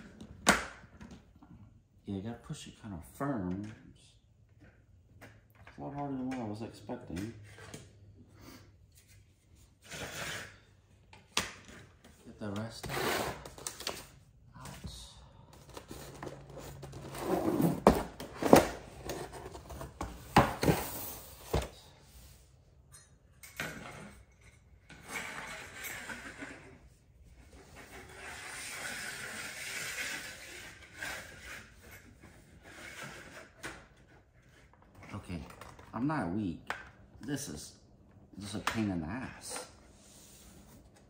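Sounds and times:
plastic rubbing and scraping: 15.6 - 21.6, 25.0 - 35.9.

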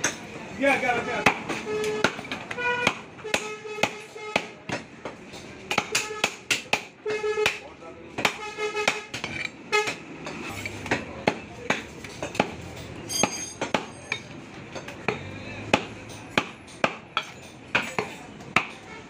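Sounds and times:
knife chopping meat on wooden block: 1.2 - 4.9, 5.7 - 7.6, 8.2 - 9.1, 15.1 - 18.8.

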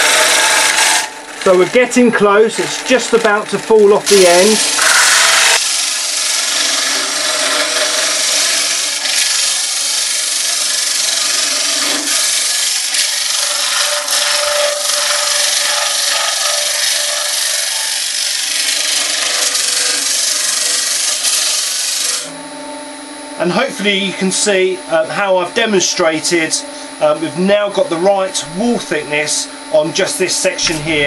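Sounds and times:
tool scraping inside wood: 0.0 - 18.0
lathe humming: 0.0 - 31.0.

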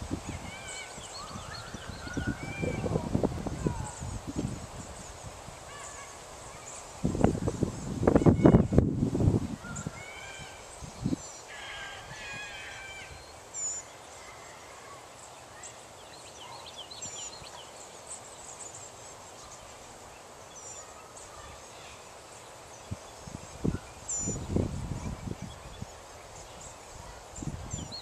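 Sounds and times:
high bird chirps and whistles: 23.7 - 25.8.

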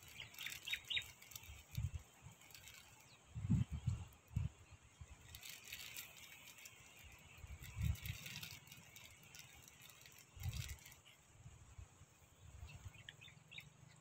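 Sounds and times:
wind gusts on microphone: 1.5 - 2.5, 3.1 - 5.4, 7.1 - 8.4
fishing reel whirring: 5.2 - 11.0.

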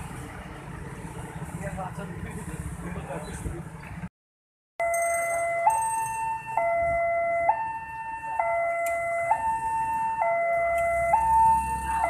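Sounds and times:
two-tone crossing alarm: 4.8 - 12.0.

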